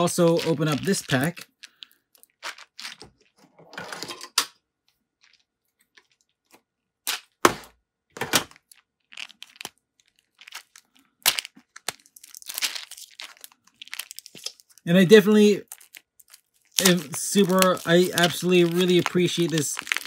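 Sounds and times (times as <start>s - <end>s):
plastic packaging crinkling: 0.0s - 3.4s, 5.0s - 6.7s, 8.4s - 20.0s.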